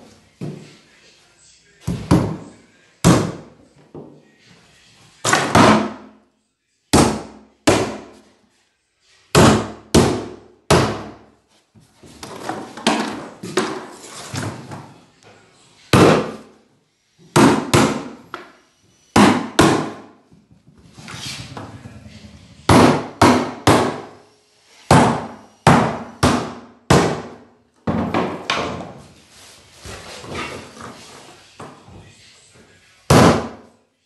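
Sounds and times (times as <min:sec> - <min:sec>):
hammer striking on wooden floor: 0:09.3 - 0:11.2, 0:17.3 - 0:18.5, 0:19.2 - 0:20.1, 0:22.7 - 0:24.2, 0:24.9 - 0:28.9.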